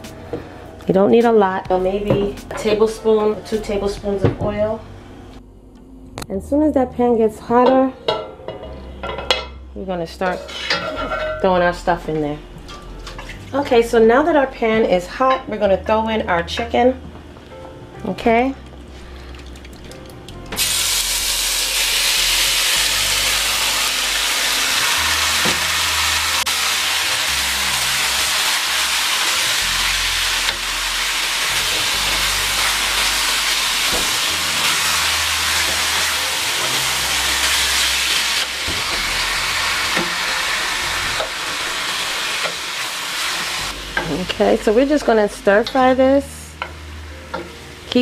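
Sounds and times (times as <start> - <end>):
food sizzling in hot oil: 20.6 - 45.8
frying hiss: 20.6 - 46.8.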